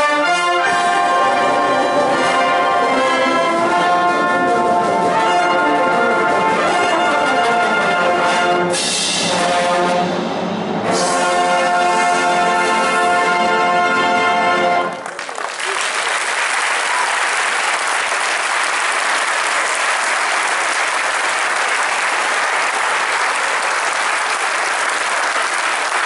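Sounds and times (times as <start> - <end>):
brass bands holding a chord: 0.0 - 10.2, 10.8 - 15.0
audience applauding: 14.9 - 26.0.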